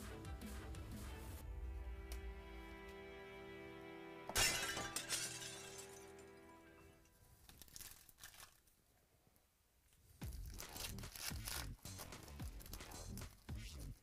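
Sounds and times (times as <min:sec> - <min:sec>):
background music: 0:00.0 - 0:07.4, 0:10.2 - 0:14.0
foil wrapper crinkling: 0:07.4 - 0:08.8, 0:10.2 - 0:14.0
sharp crackle: 0:10.2 - 0:14.0.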